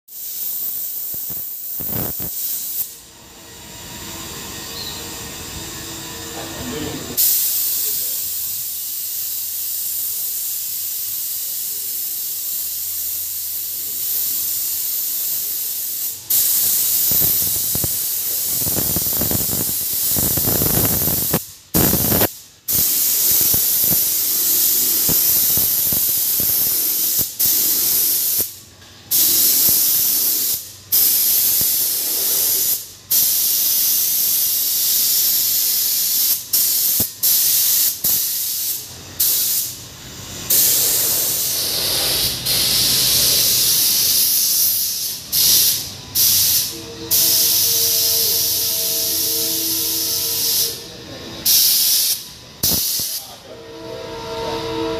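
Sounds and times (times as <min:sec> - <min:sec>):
spray gun hissing: 0:00.1 - 0:03.0, 0:06.6 - 0:50.8, 0:51.4 - 0:53.4.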